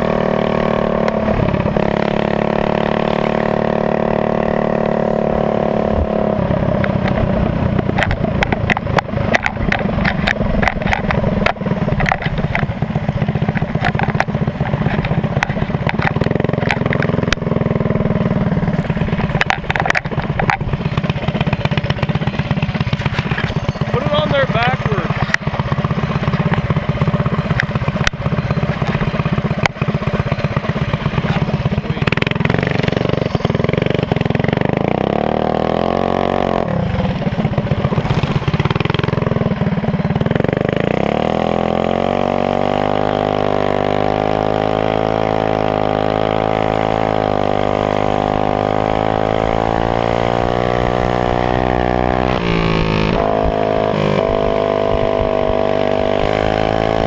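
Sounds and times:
minibike engines idling: 6.7s - 35.2s, 36.5s - 41.0s
engine revving at high pitch: 30.5s - 37.2s, 40.2s - 57.0s.

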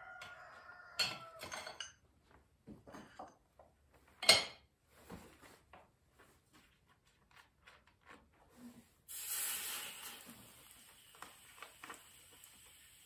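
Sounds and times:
aerosol spray hiss: 9.1s - 13.0s.

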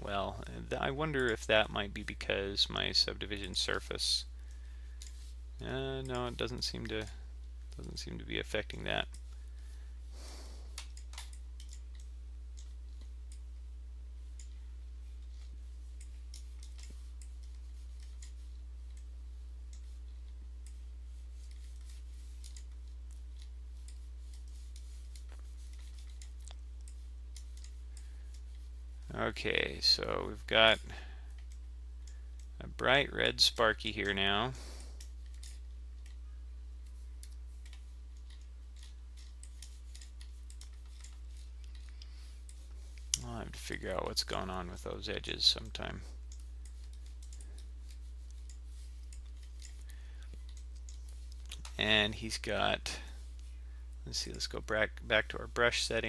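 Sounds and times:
low electrical hum: 0.0s - 56.0s
computer mouse clicks: 10.7s - 13.5s, 14.3s - 14.6s, 15.2s - 19.1s, 21.4s - 28.6s, 36.8s - 43.3s, 45.7s - 51.8s.

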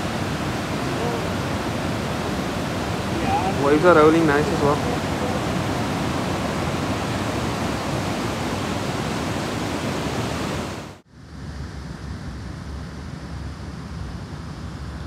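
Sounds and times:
ocean waves washing on beach: 0.0s - 11.0s.

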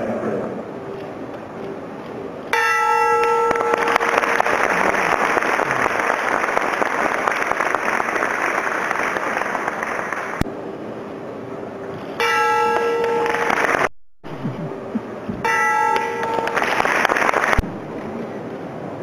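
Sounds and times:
audience applause: 3.5s - 10.4s, 13.2s - 13.9s, 16.3s - 17.6s.

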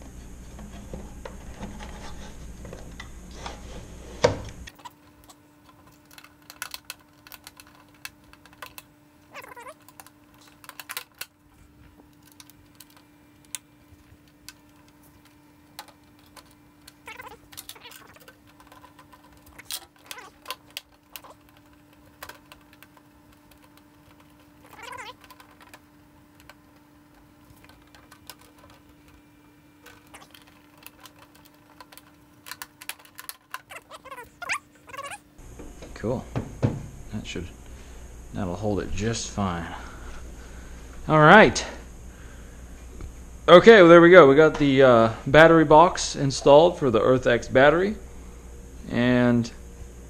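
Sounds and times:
cat meowing: 9.3s - 9.9s, 17.0s - 18.3s, 19.6s - 20.6s, 24.6s - 25.2s, 33.6s - 35.3s.

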